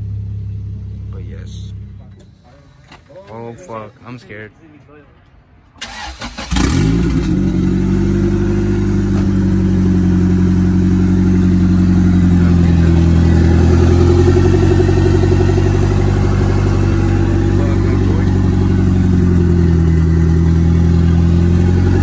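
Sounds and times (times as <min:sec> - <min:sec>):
engine cranking and starting: 0:05.8 - 0:07.4
engine idling: 0:05.9 - 0:22.0.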